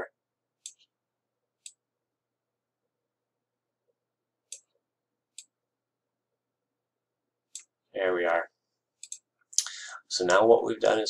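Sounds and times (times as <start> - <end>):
computer mouse clicks: 1.6 - 1.8, 4.5 - 5.6, 7.5 - 7.7, 9.0 - 9.3.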